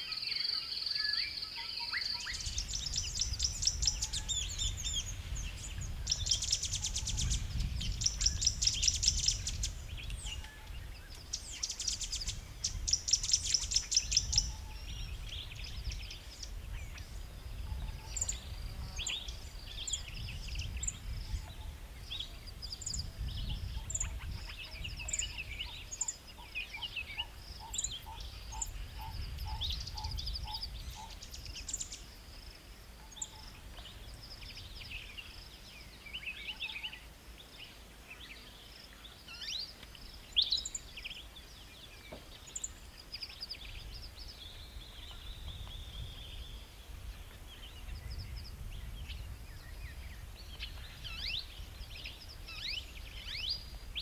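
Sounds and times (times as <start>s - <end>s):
bird chirps: 0.0s - 54.0s
small birds chattering trills: 0.0s - 54.0s.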